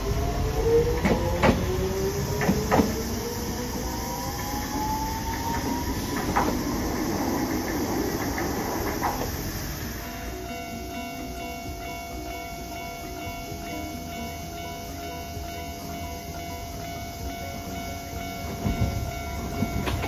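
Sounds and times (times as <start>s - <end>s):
wheel clacks over rail joints: 0.0s - 10.0s, 16.6s - 20.0s
tram motor whine: 0.0s - 20.0s
tram running rumble: 0.0s - 20.0s.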